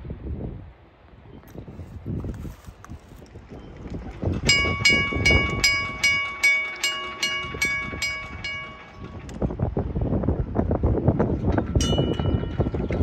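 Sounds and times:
railroad crossing bell ringing: 0:04.3 - 0:09.7, 0:11.6 - 0:13.0.

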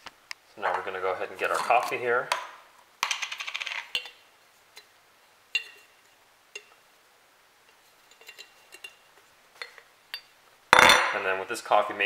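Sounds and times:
glass jar clinks and taps: 0:03.0 - 0:04.2, 0:05.6 - 0:05.9.

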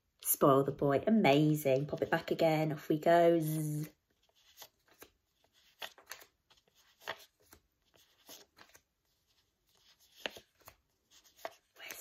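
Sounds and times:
paper flashcards flicking: 0:04.4 - 0:08.8, 0:10.0 - 0:12.0.

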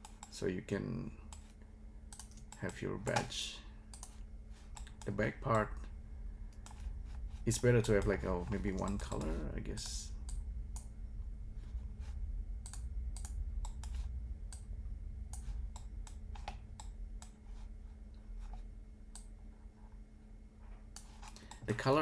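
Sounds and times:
low steady hum: 0:00.0 - 0:22.0
keyboard and mouse clicking: 0:01.3 - 0:03.3, 0:03.9 - 0:05.7, 0:07.9 - 0:10.9, 0:12.6 - 0:14.6.

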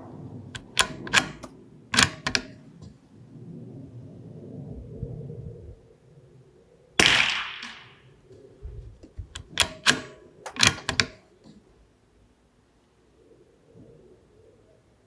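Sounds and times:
rifle bolt clicking: 0:00.6 - 0:02.6, 0:09.4 - 0:11.2
suppressed rifle shot: 0:07.0 - 0:08.1.

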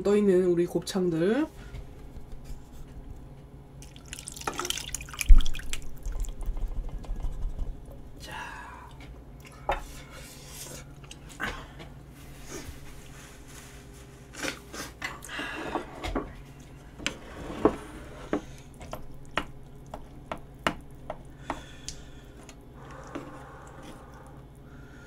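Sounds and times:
eating sounds: 0:18.6 - 0:24.6.

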